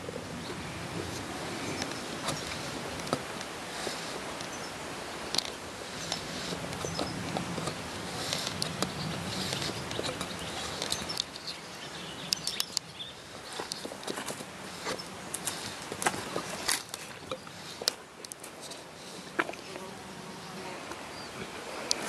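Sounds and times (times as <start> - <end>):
soft rustling in grass: 0.0 - 22.0
dog chewing with crunching clicks: 5.4 - 11.5.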